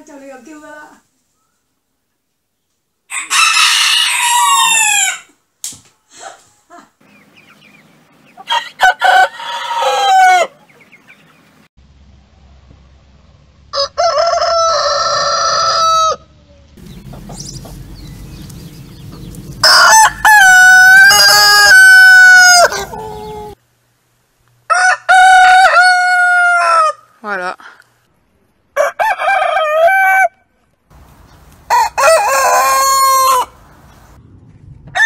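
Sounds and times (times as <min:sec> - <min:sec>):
roosters crowing: 0:03.1 - 0:05.4, 0:08.2 - 0:11.5, 0:13.7 - 0:23.6, 0:24.6 - 0:27.2, 0:28.8 - 0:34.1.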